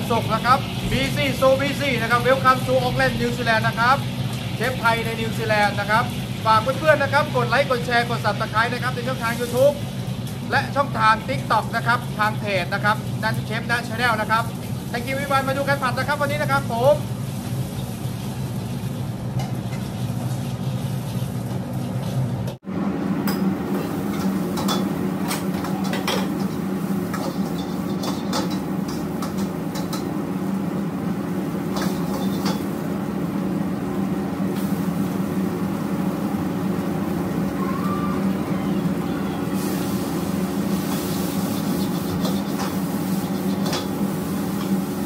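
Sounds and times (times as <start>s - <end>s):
food sizzling: 0.0s - 45.0s
gas range and exhaust drone: 0.0s - 45.0s
ladle clanking on a wok: 23.3s - 30.2s, 31.7s - 32.8s, 40.9s - 44.8s.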